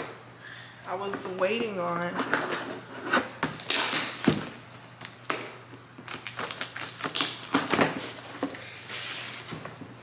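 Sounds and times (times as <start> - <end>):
cardboard and tape tearing: 2.3 - 4.3, 6.1 - 9.6.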